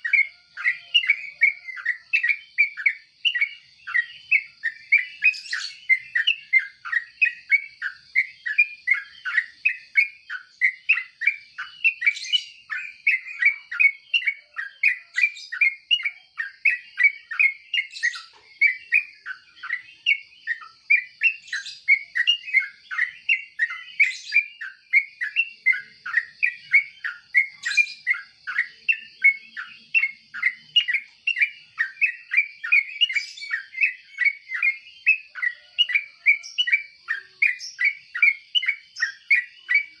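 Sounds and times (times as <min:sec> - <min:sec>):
bird chirping: 0:00.0 - 0:40.0.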